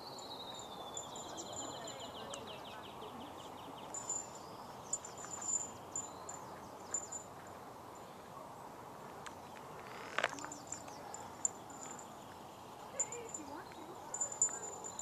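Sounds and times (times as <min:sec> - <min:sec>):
steady outdoor hiss: 0:00.0 - 0:15.0.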